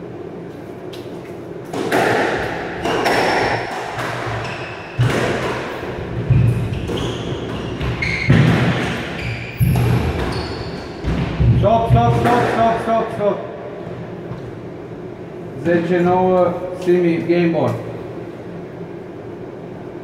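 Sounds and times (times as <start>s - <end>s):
squash ball thudding off walls: 1.7s - 12.7s
shoes squeaking on wooden floor: 6.2s - 8.4s, 9.1s - 11.1s.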